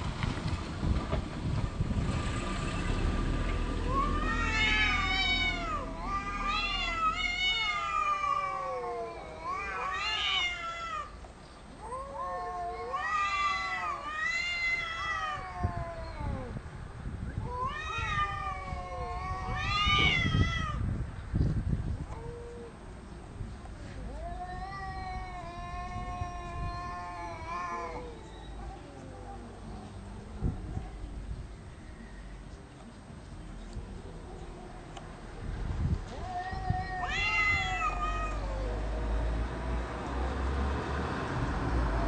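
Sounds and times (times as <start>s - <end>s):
cats caterwauling: 3.8s - 11.2s, 11.8s - 16.7s, 17.4s - 20.8s, 22.0s - 22.8s, 23.8s - 29.7s, 36.0s - 39.2s.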